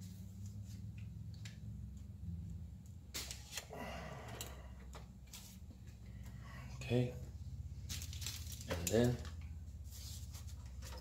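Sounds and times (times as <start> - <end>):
low steady hum: 0.0 - 11.0
foil crinkling: 7.8 - 9.2.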